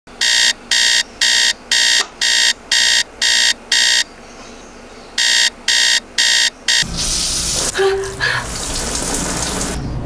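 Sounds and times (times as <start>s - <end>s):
electronic alarm clock beeping: 0.2s - 4.1s, 5.2s - 6.9s.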